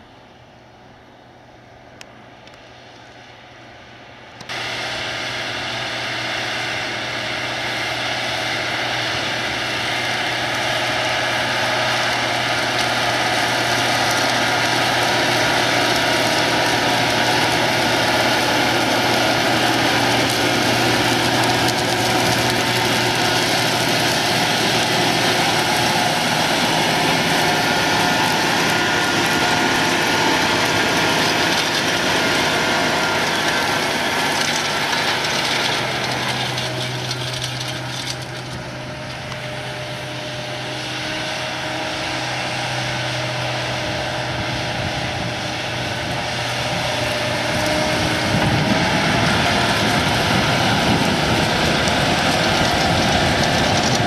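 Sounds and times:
tractor diesel engine: 0.0 - 54.0
disc harrow clattering: 10.5 - 39.8, 46.0 - 54.0.

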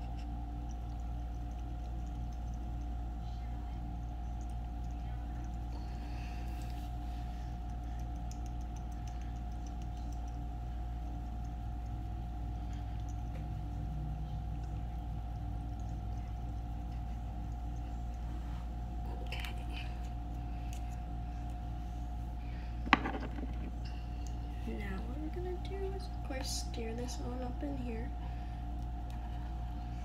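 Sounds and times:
faint constant tone: 0.0 - 30.0
low background hum: 0.0 - 30.0.

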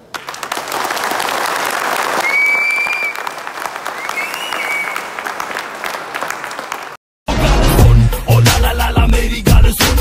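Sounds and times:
audience applauding: 0.0 - 7.0
shrill whistles from crowd: 2.2 - 5.2.

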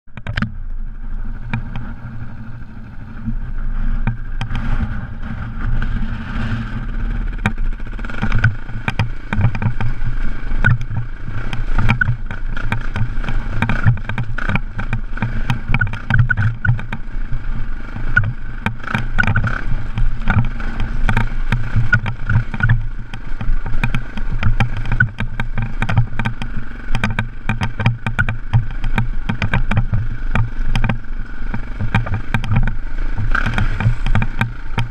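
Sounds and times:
motorcycle engine running: 0.1 - 34.9
stones knocking and rattling: 7.4 - 10.0, 10.6 - 17.0, 18.1 - 34.9.

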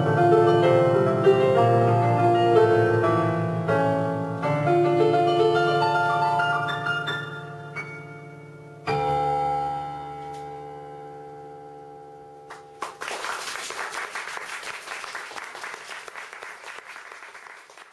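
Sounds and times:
audience applause: 12.8 - 17.9.

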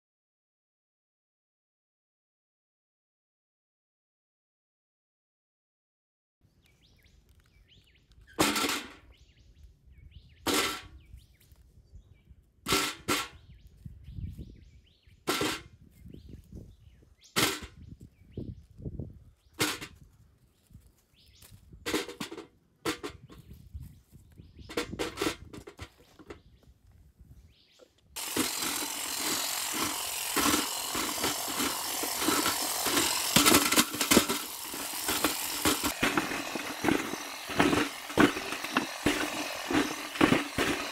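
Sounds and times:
power tool rattling clatter: 28.2 - 40.9.

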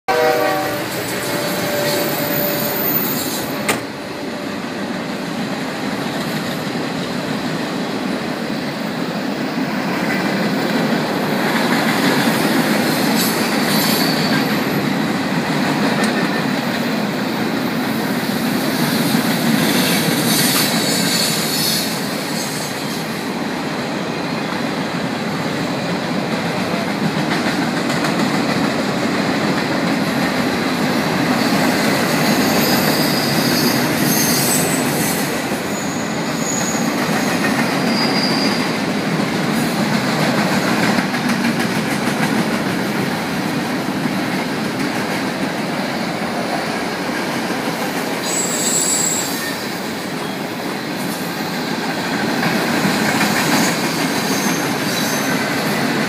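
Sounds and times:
train wheels rumbling on rails: 0.1 - 56.0
high wheel squeal: 0.6 - 3.8, 13.1 - 14.7, 31.4 - 38.7, 48.2 - 50.5, 53.6 - 55.5.

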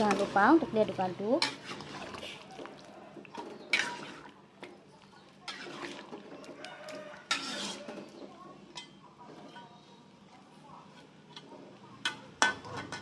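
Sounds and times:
metal spatula stirring in a wok: 1.3 - 2.5, 3.3 - 4.3, 5.4 - 13.0.

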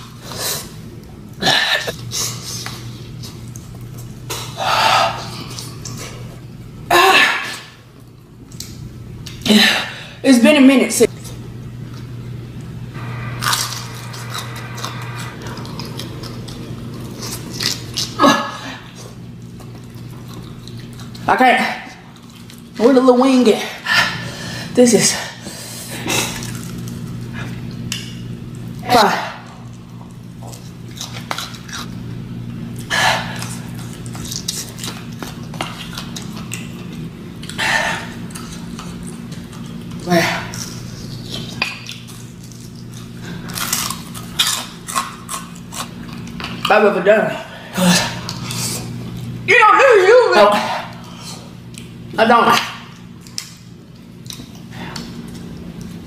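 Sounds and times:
low steady hum: 0.0 - 56.0
wet chewing and smacking: 0.9 - 6.6, 15.9 - 18.2, 18.9 - 22.8, 29.6 - 46.8, 48.0 - 49.4, 50.9 - 56.0.

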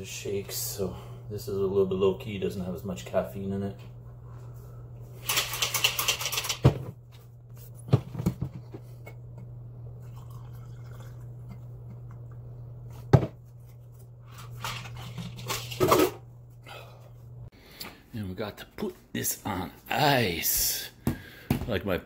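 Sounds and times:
drink pouring into glass: 10.0 - 12.4.

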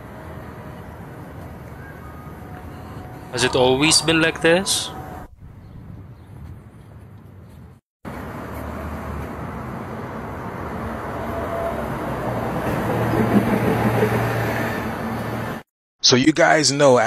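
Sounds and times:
low engine hum: 0.0 - 11.3
passing vehicles: 0.0 - 15.7.

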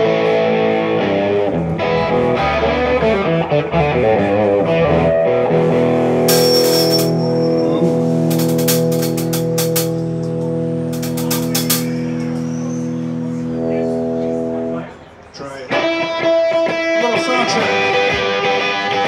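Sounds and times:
electric guitar and bass: 0.0 - 15.0, 15.7 - 19.0.

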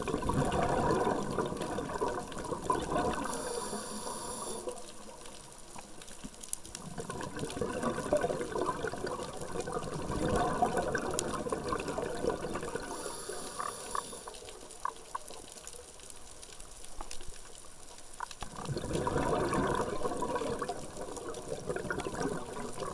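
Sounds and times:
gurgling exhaled bubbles: 0.0 - 5.6, 6.6 - 15.2, 18.4 - 22.9
regulator hissing inhale: 3.2 - 5.0, 12.8 - 14.5.

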